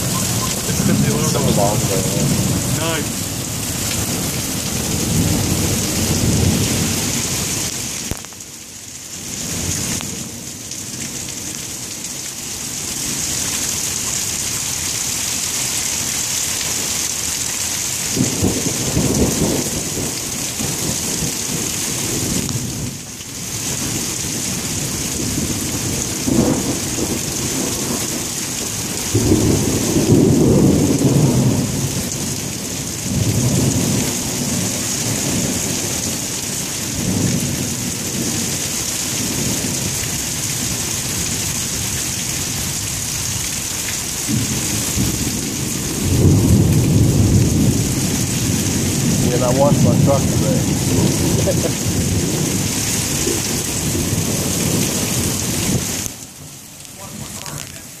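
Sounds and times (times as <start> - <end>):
thunder rolling: 0.0 - 7.2, 18.2 - 23.0, 24.9 - 36.3, 44.3 - 56.1
rain hissing: 0.0 - 58.0.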